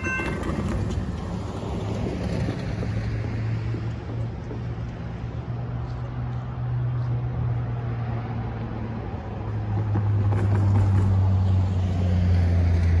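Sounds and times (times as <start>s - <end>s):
traffic driving over crossing: 0.0s - 5.6s
engine hum: 0.0s - 13.0s.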